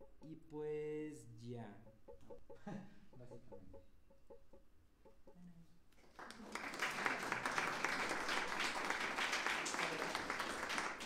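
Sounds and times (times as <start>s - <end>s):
audience applauding: 6.0s - 11.0s.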